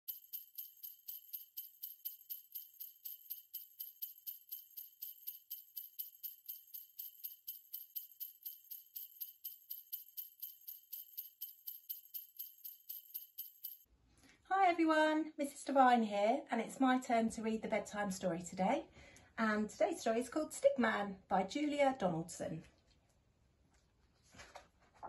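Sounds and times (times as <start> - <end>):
sleigh bells jingling: 0.0 - 13.9.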